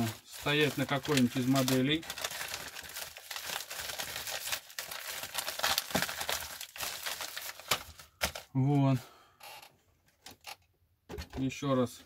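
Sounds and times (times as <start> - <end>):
paper packaging crinkling: 0.0 - 8.6.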